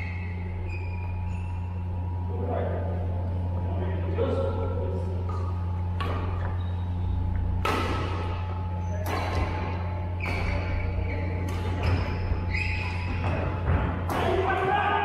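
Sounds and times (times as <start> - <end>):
shoes squeaking on court: 0.0 - 1.9, 5.3 - 7.6, 8.2 - 13.7
steady low hum: 0.0 - 15.0
rackets hitting shuttlecock: 5.2 - 6.6, 7.3 - 14.7.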